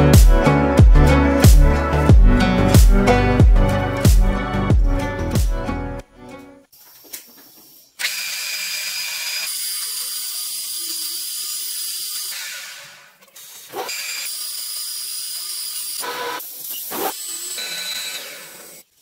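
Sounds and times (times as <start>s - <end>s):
metal lathe cutting steel: 8.0s - 13.1s, 13.7s - 18.9s.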